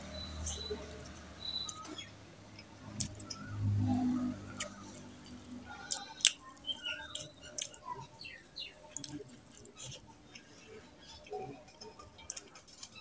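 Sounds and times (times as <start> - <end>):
fingers squelching in food: 2.9 - 10.6
mouth eating sounds: 2.9 - 12.7.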